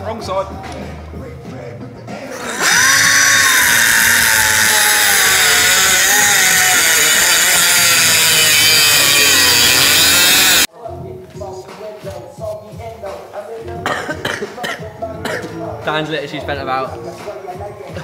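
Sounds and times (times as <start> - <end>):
angle grinder cutting metal: 2.4 - 10.7.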